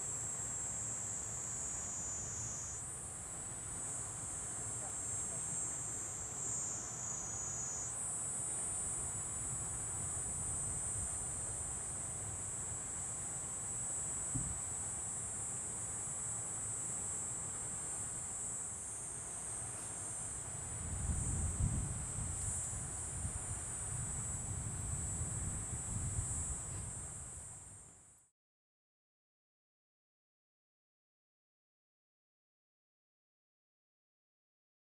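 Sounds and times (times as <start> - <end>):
high-pitched insect chorus: 0.0 - 28.2
lower insect buzzing: 4.0 - 9.6.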